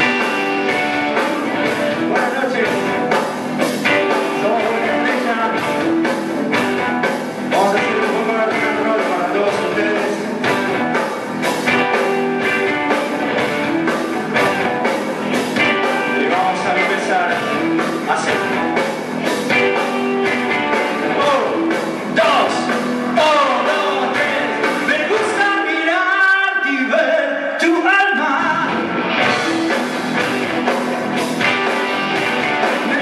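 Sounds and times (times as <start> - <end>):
person singing: 0.0 - 6.8, 7.5 - 10.9, 15.7 - 18.9, 20.8 - 27.3, 32.6 - 33.0
electric guitars: 0.0 - 25.9, 28.3 - 33.0
steady drumbeat: 0.0 - 25.9, 28.6 - 33.0.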